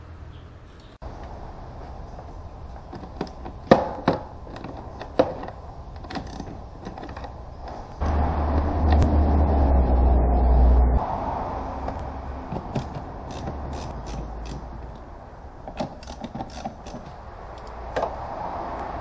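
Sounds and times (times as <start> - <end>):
low hum with rushing noise: 5.6 - 19.0
hand tool clicking on plastic: 15.7 - 17.8.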